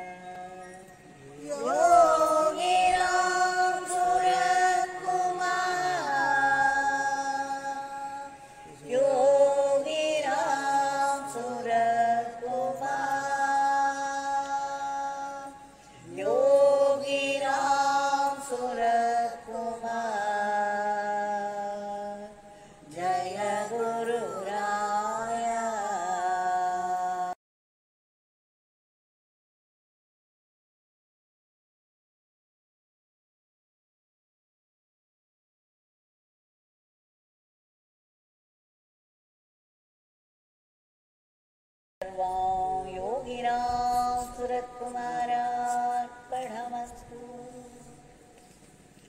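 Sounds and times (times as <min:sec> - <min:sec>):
mantra chanting: 0:00.0 - 0:27.4, 0:42.0 - 0:48.2.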